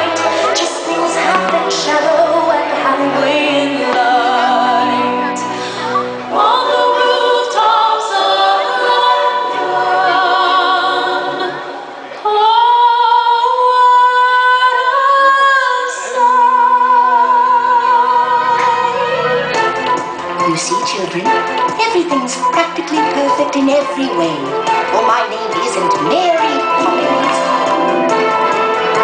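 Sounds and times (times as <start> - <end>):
choir singing held notes: 0.0 - 12.0, 17.2 - 20.9.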